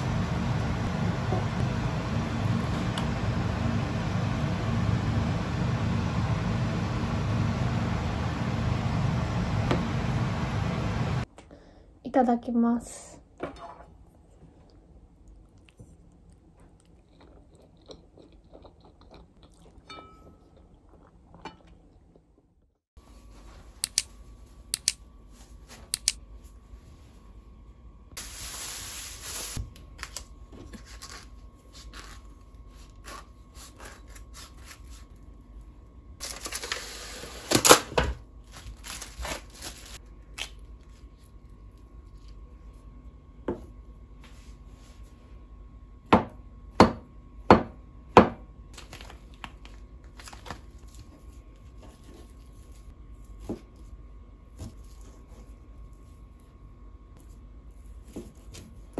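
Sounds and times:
knife cutting cabbage on plastic board: 0:30.8 - 0:35.0.

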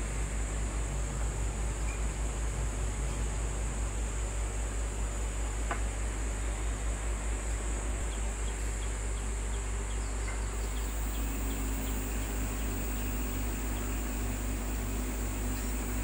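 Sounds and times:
fan noise: 0:10.4 - 0:16.0
faint high whine: 0:10.5 - 0:16.0
transformer hum: 0:10.6 - 0:16.0.

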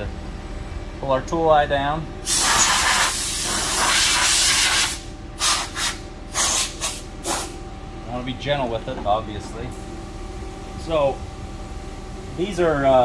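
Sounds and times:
compressed air blow gun hissing: 0:02.2 - 0:07.6.

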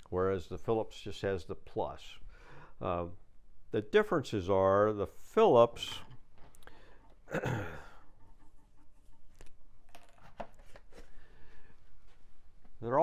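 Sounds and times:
objects handled on a workbench: 0:08.0 - 0:12.8.

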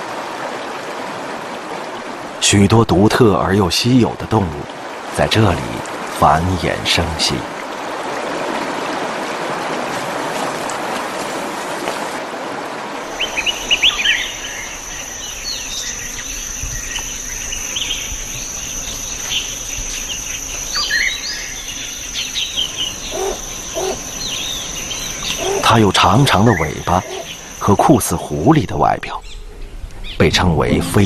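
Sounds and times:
rushing water: 0:00.0 - 0:31.0
bird chirps and trills: 0:13.1 - 0:27.9
high-pitched insect drone: 0:13.1 - 0:28.5.

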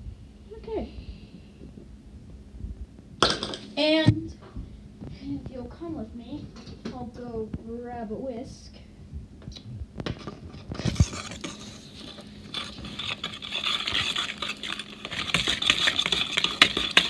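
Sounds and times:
whisk scraping plastic bowl: 0:10.2 - 0:17.0.

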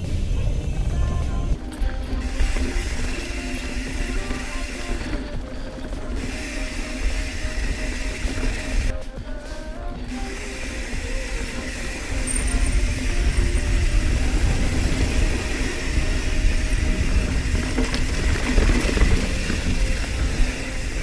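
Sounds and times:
wind buffeting microphone: 0:00.0 - 0:04.3, 0:10.9 - 0:21.0
bike rattling: 0:00.0 - 0:21.0
bike tyre noise: 0:00.0 - 0:21.0.

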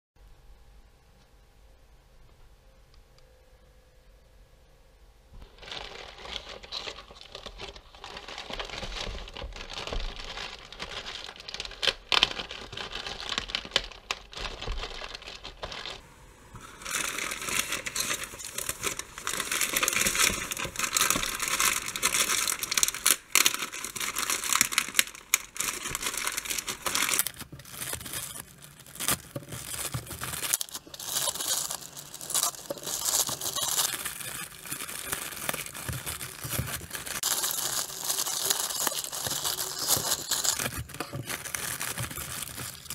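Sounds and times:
plastic bag crinkling and rustling: 0:05.4 - 0:42.9
blade slitting bag open: 0:16.6 - 0:42.9.

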